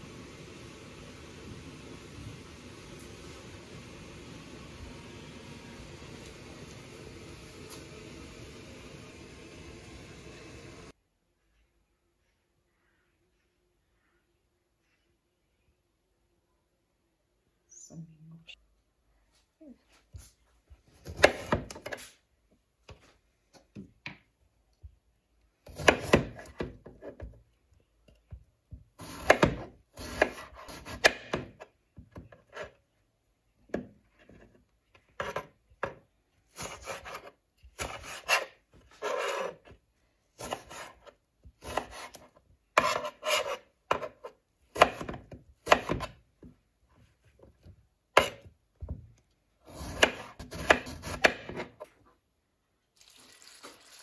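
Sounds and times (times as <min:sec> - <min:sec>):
knife slicing on cutting board: 0:29.0 - 0:31.1, 0:36.5 - 0:39.6, 0:40.4 - 0:45.1, 0:49.7 - 0:51.6.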